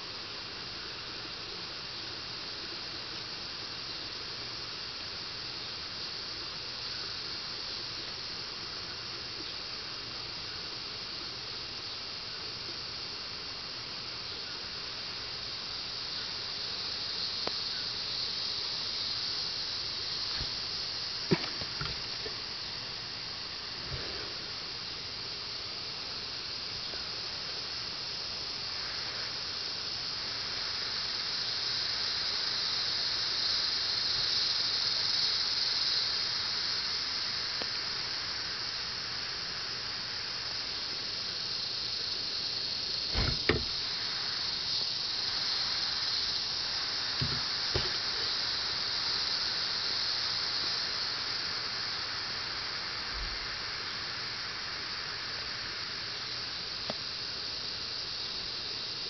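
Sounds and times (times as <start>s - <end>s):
high-pitched insect chorus: 0.0s - 59.0s
dull knocks: 43.1s - 43.8s, 47.2s - 48.0s.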